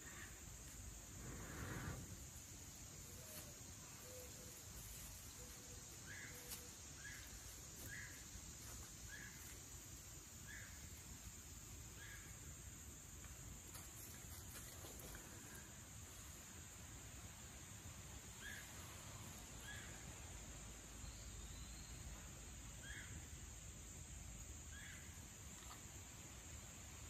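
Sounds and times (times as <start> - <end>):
high insect drone: 0.0 - 27.0.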